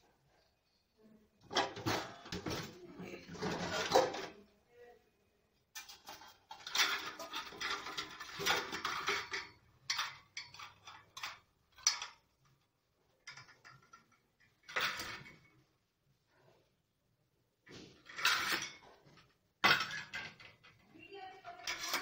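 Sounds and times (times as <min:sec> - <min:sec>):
steel dishes clattering: 0:05.8 - 0:12.2, 0:18.0 - 0:19.0, 0:19.6 - 0:20.7, 0:21.5 - 0:22.0.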